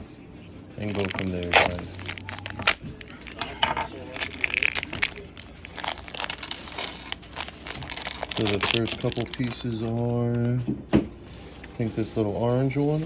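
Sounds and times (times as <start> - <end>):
plastic bag crinkling: 0.8 - 10.2
plastic pieces clicking and rattling: 0.9 - 9.8.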